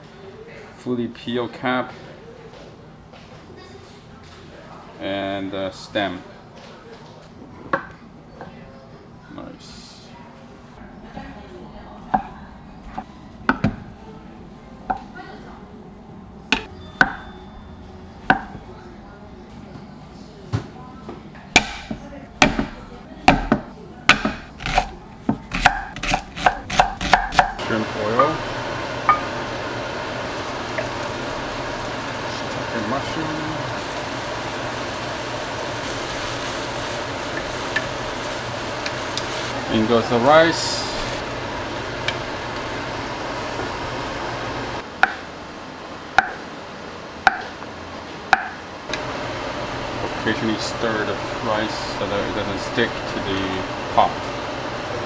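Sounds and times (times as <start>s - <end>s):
knife chopping on wooden board: 23.3s - 27.6s
steady hiss from clay pot: 30.2s - 43.0s.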